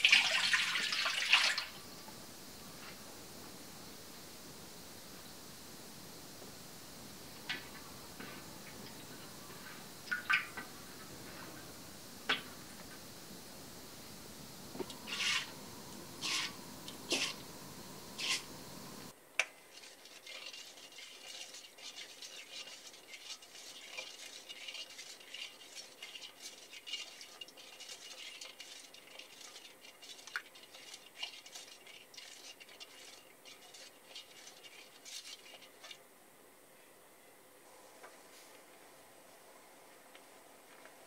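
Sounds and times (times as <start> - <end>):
ladle scraping metal wok: 15.0 - 15.6, 16.2 - 17.5, 18.2 - 18.6, 19.6 - 36.0.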